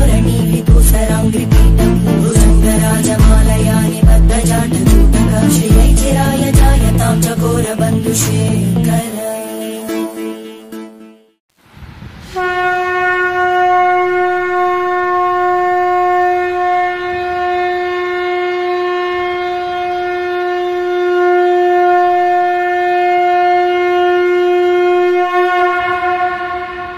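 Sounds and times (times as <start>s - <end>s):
conch shell blown: 12.3s - 26.9s.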